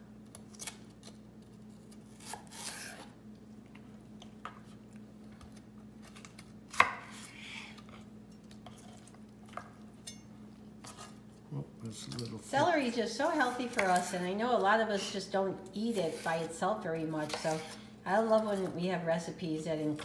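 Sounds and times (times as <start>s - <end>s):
knife slicing celery: 1.9s - 3.1s, 13.2s - 14.3s, 15.8s - 16.5s.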